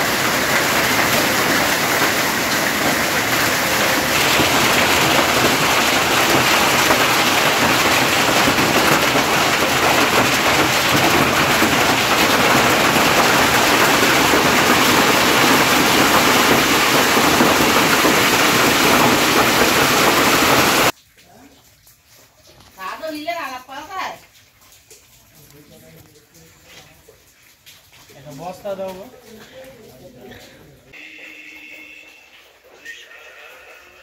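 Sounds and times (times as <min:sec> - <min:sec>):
hail and heavy rain falling: 0:00.0 - 0:21.0.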